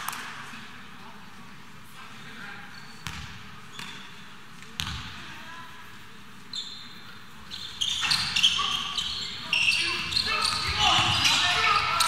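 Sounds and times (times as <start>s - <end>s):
sneaker squeaks on court: 2.8s - 4.1s, 6.5s - 12.0s
basketball bouncing on court: 3.0s - 4.0s, 4.8s - 5.1s.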